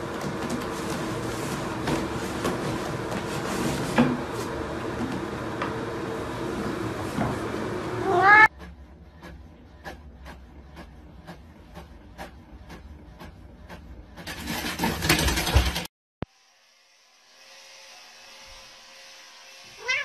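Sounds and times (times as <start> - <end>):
cat meowing: 8.0 - 8.5, 19.8 - 20.0.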